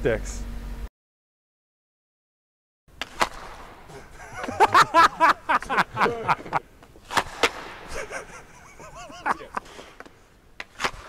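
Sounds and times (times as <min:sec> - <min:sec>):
hockey puck knocking off sticks: 0:02.9 - 0:11.0.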